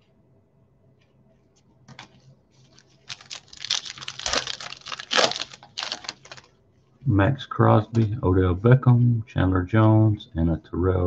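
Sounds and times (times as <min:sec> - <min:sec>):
foil pack crinkling: 0:02.0 - 0:06.5.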